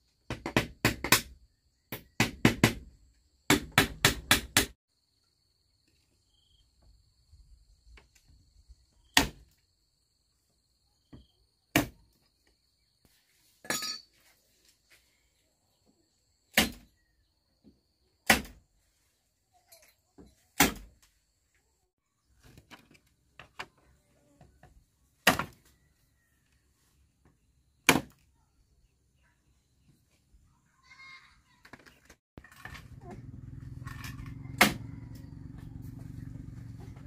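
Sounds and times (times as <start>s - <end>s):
hand tool striking bamboo: 18.2s - 18.6s, 33.8s - 34.8s.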